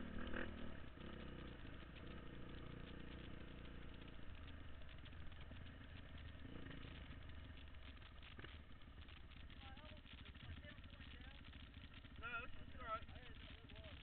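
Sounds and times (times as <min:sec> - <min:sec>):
dirt bike engine idling: 0:00.0 - 0:14.0.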